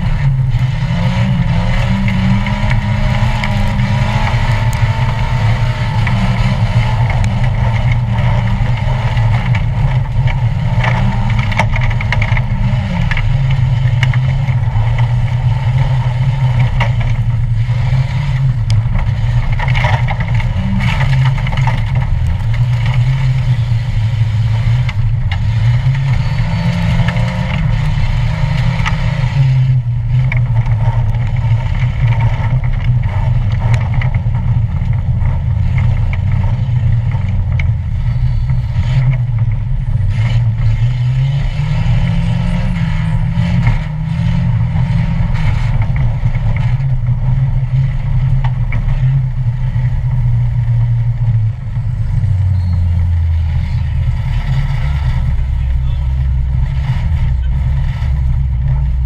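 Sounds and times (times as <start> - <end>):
car engine revving: 0.0 - 59.0
knocks and rattles: 1.4 - 23.5.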